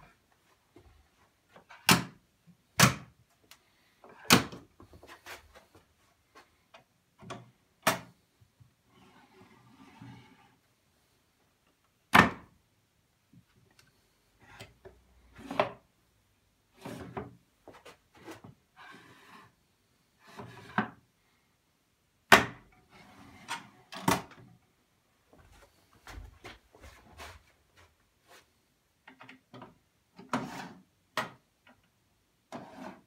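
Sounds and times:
wood scraping on wood: 32.5s - 33.0s.

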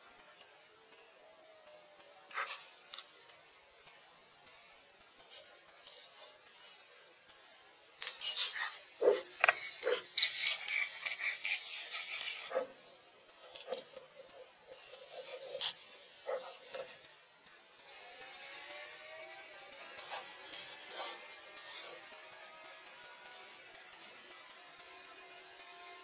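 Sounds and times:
scraping and rubbing: 5.3s - 12.8s, 13.4s - 17.0s, 20.0s - 24.6s.

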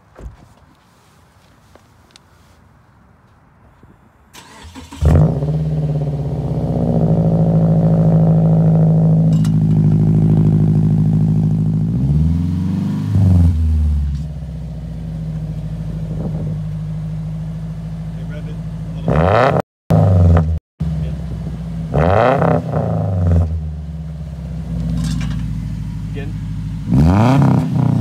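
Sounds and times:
car starter cranking: 4.3s - 5.5s
car engine idling and revving: 4.4s - 28.0s.

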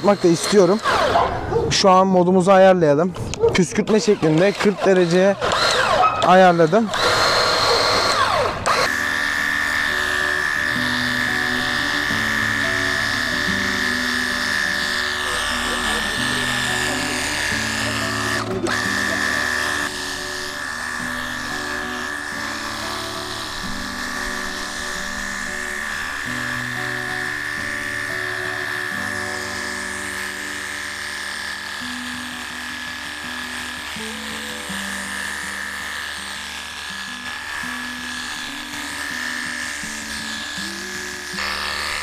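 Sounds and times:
electric pump whining: 0.0s - 2.4s, 3.0s - 42.0s
background music: 8.1s - 42.0s.

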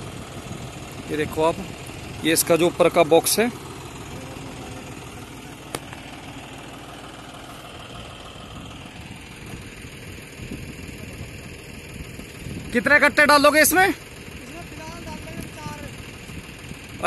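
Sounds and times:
tractor diesel engine idling: 0.0s - 17.0s.

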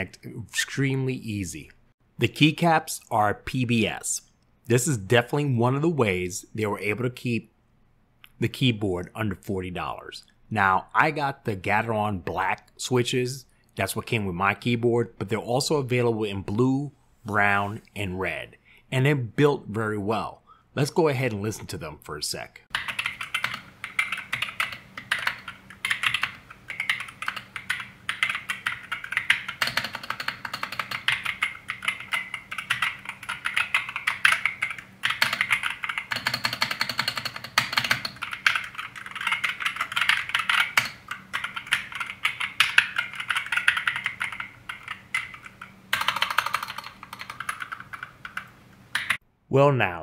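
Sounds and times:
fast typing on mechanical keyboard: 22.7s - 49.2s.

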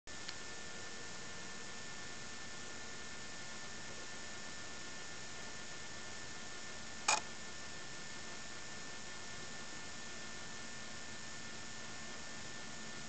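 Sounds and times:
steady hiss with faint hum: 0.1s - 13.0s.

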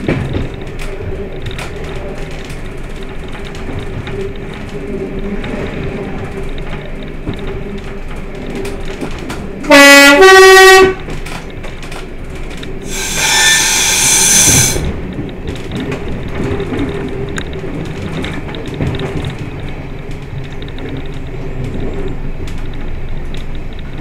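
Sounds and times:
train running noise: 0.0s - 24.0s
train two-tone horn: 9.6s - 11.2s, 12.8s - 15.0s
hissing: 12.9s - 15.0s.

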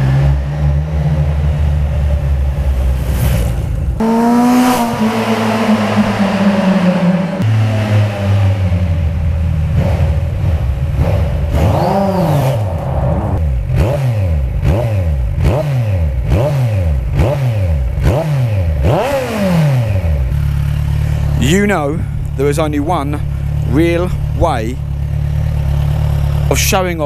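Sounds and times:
motorcycle engine revving in tunnel: 0.0s - 27.0s.

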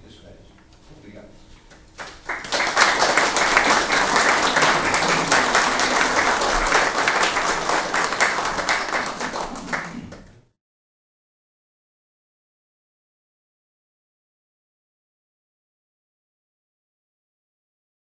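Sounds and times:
audience applauding: 2.0s - 10.5s.

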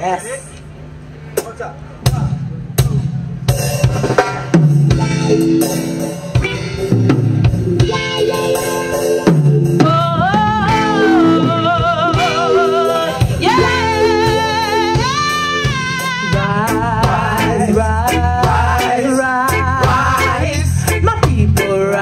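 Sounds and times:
live reggae band playing: 0.0s - 22.0s
singers in harmony: 10.2s - 21.0s.

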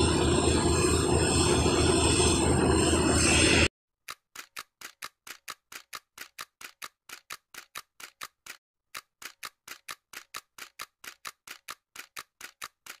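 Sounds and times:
keyboard typing clicks: 4.0s - 13.0s.

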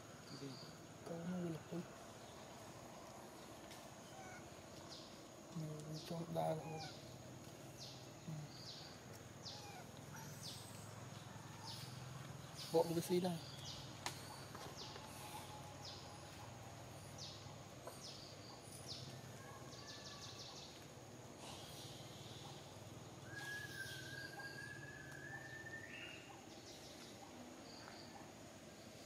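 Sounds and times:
bird chirps: 4.0s - 20.8s, 21.5s - 28.3s
long thin whistled call: 23.3s - 26.3s.

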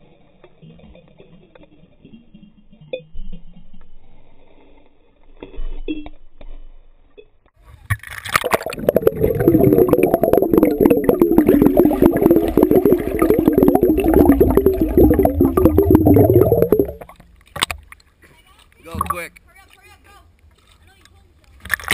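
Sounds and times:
small clicks underwater: 7.9s - 9.0s, 13.7s - 21.9s
underwater churning and bubbling: 8.3s - 17.3s.

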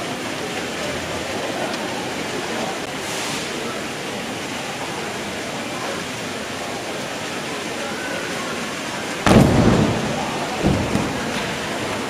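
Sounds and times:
crowd murmur in large hall: 0.0s - 12.0s.

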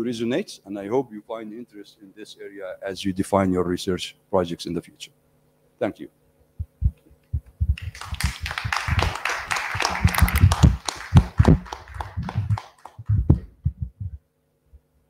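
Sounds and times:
low thumps: 6.6s - 7.9s, 9.9s - 14.2s
audience applauding: 7.8s - 13.5s.

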